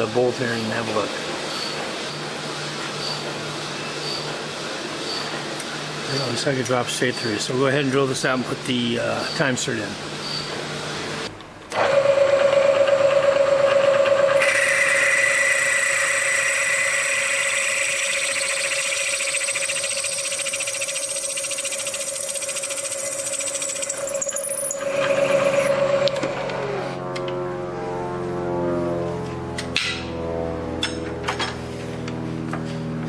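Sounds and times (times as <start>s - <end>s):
milling machine spindle whine: 14.1s - 27.1s
drill bit cutting metal: 14.4s - 26.2s.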